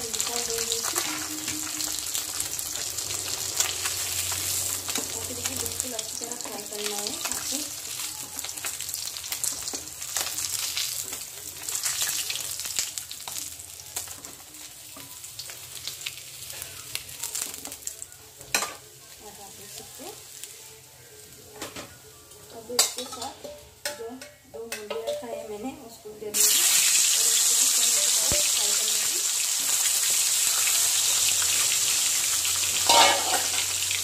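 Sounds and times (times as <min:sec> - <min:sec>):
fish sizzling in hot oil: 0:00.0 - 0:21.1, 0:22.5 - 0:24.0, 0:26.3 - 0:34.0
metal spatula scraping pan: 0:32.9 - 0:33.6.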